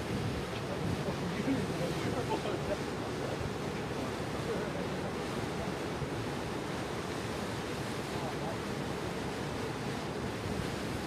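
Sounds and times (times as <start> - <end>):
wind buffeting microphone: 0.0 - 2.6
rush of wind and water: 0.0 - 11.0.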